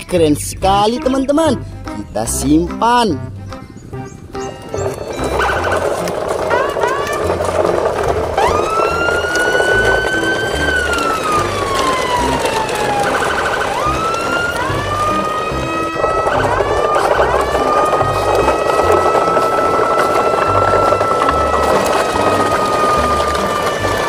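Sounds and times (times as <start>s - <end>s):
siren-like whistling tone: 4.6s - 7.7s, 8.4s - 24.0s.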